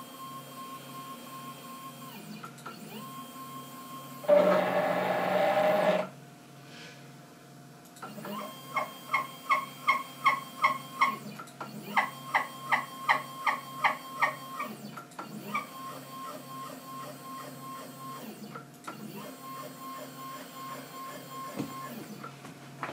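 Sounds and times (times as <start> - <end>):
stepper motors whining: 4.3 - 6.1.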